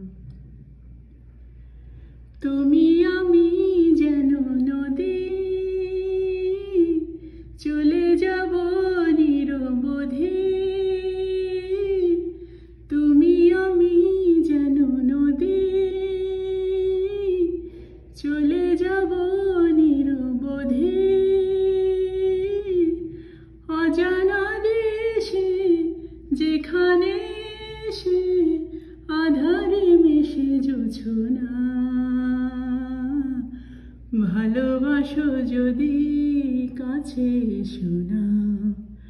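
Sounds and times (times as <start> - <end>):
singer breathing: 1.4 - 2.4, 12.3 - 12.9, 17.6 - 18.2, 23.0 - 23.7, 33.5 - 34.1
woman singing wordless melody: 2.4 - 39.0.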